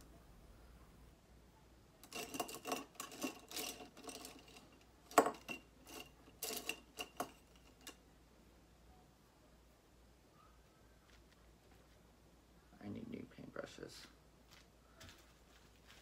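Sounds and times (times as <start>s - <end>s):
paintbrushes clinking against glass jar: 2.0s - 8.0s.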